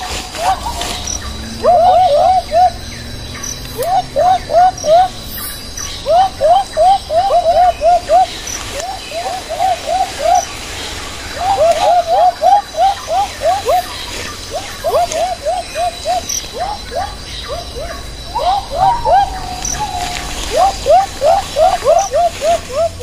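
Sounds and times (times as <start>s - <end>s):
bird whistling calls: 0.0s - 23.0s.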